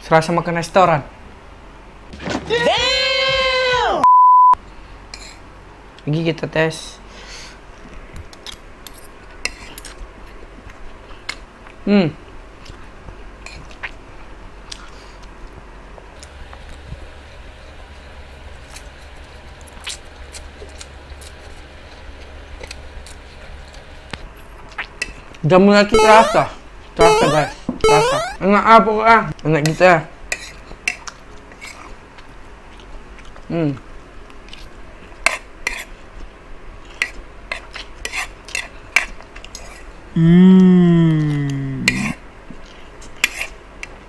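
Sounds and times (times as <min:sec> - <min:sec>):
falling pitched sound effect: 0:26.0 - 0:28.5
person slurping and chewing noodles: 0:41.8 - 0:43.6.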